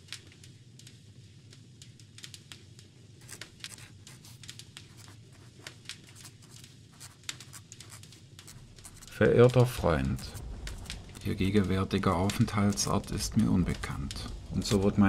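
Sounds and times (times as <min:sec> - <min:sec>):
quill pen scratching on paper: 0:03.2 - 0:11.3.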